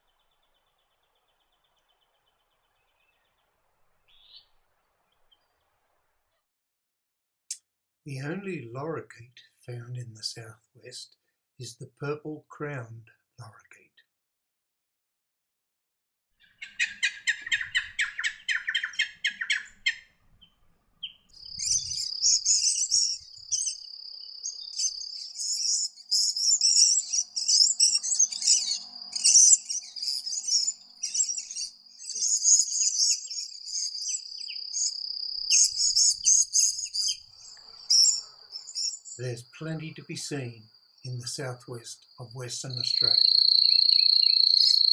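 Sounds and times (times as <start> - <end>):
lorikeets chattering: 16.4 - 20.0, 21.0 - 44.9
high-pitched insect drone: 21.6 - 39.6, 42.5 - 44.9.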